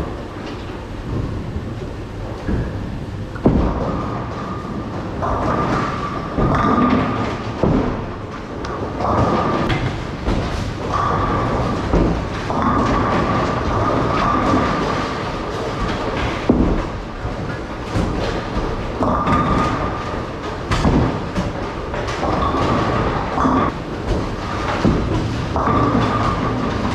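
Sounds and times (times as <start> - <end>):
bowling balls rolling: 0.0 - 26.9
bowling pins crashing: 0.8 - 26.9.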